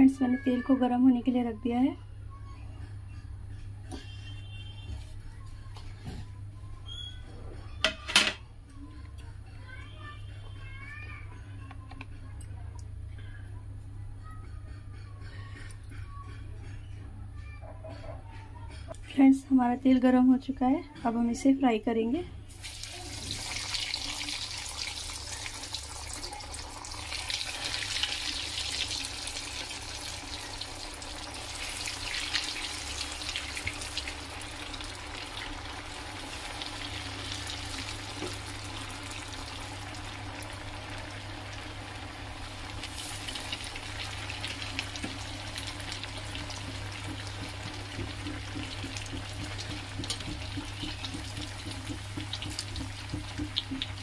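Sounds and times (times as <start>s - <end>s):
food deep-frying in sizzling oil: 22.5s - 54.0s.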